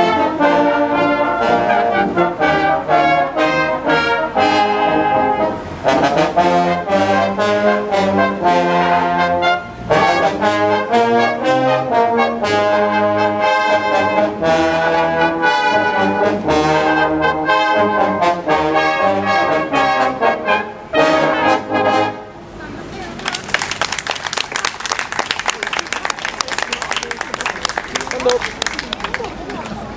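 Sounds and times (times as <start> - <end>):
brass band playing: 0.0 - 22.9.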